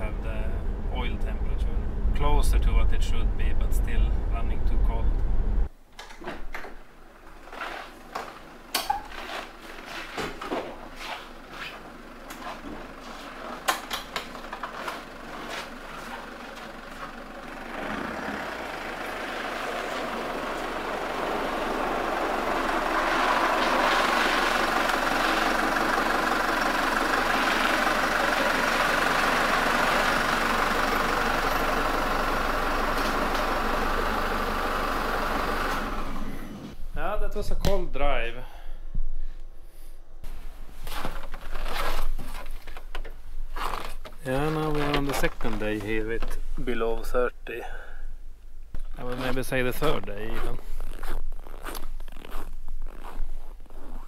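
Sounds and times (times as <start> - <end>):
car engine idling: 7.0 - 36.8.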